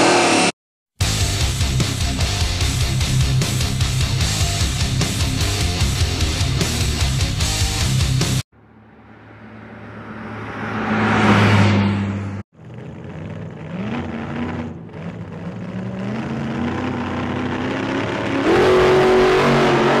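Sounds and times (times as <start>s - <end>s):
steady engine note: 0.0s - 20.0s
car engine accelerating: 1.4s - 20.0s
car engine passing: 8.6s - 20.0s.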